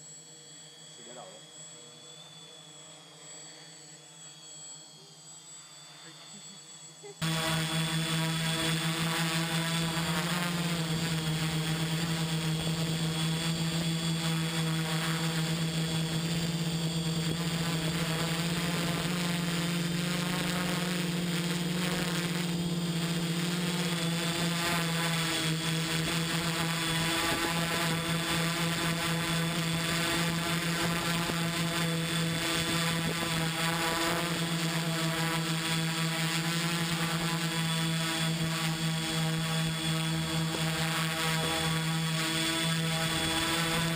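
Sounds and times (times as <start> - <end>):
quadcopter motors droning: 0.0 - 43.9.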